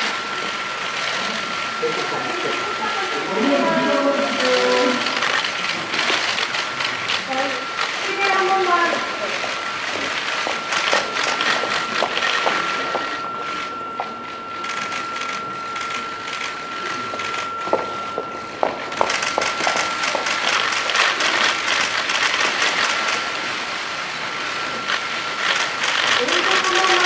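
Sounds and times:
faint high tone: 12.6 - 20.1.

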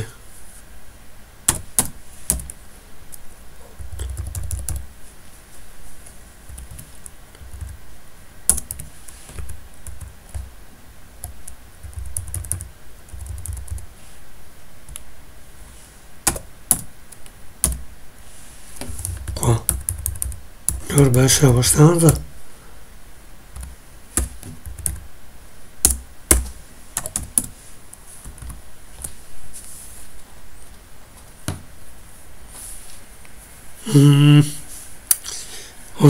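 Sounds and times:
computer keyboard typing: 1.5 - 2.6, 3.8 - 4.9, 6.5 - 7.8, 8.4 - 10.5, 11.2 - 13.9, 16.2 - 17.8, 18.9 - 21.2, 23.5 - 25.0, 25.8 - 27.5.

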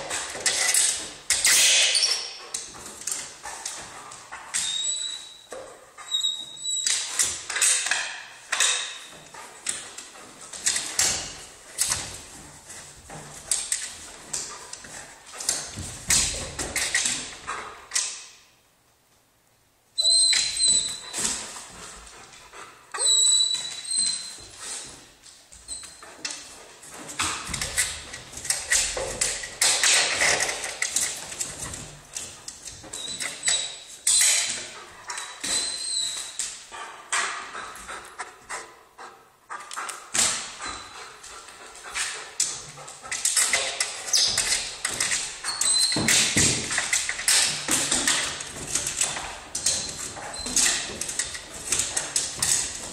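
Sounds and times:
dog whining and whimpering: 23.0 - 24.4.

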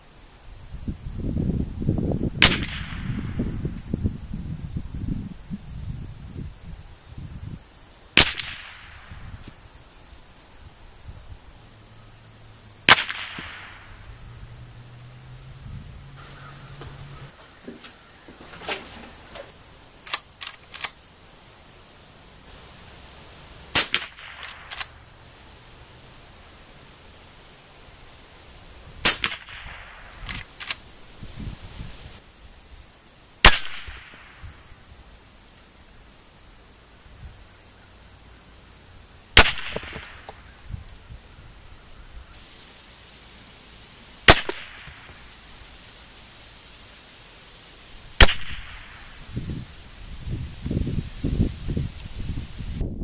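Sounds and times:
insects droning: 0.0 - 53.0
rifle shots: 12.9 - 13.8, 23.7 - 24.9, 29.0 - 30.4, 33.5 - 34.1, 39.4 - 40.2, 44.3 - 45.0, 48.2 - 48.9.

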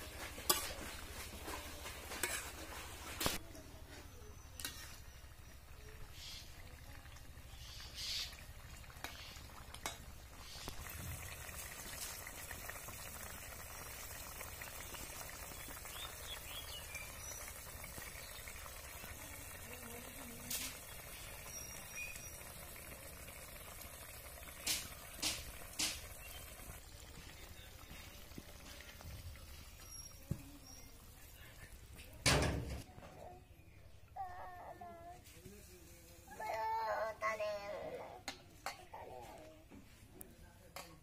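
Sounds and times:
curry bubbling in a wok: 0.0 - 3.6, 4.3 - 32.5.

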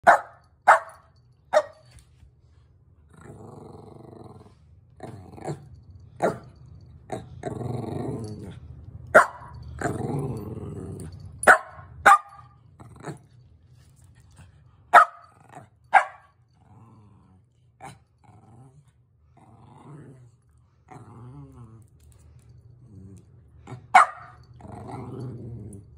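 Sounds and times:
dog barking: 0.0 - 1.8, 9.2 - 9.5, 11.4 - 12.5, 14.9 - 15.2, 15.9 - 16.3, 23.9 - 24.4
dog growling: 3.1 - 6.4, 7.0 - 8.7, 9.7 - 11.3, 12.8 - 13.4, 16.5 - 21.9, 22.8 - 25.9.

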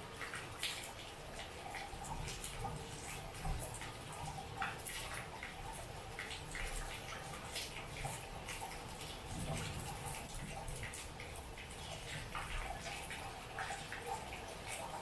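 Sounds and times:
drips and splashes: 0.0 - 15.0
rain falling: 0.0 - 15.0.

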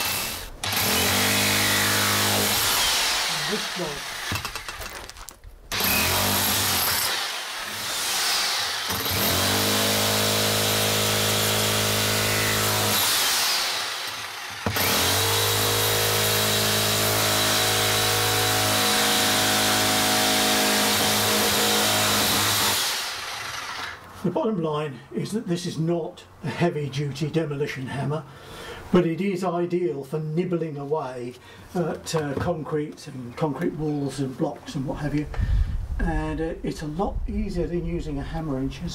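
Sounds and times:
hammer drill breaking concrete: 0.0 - 24.0.

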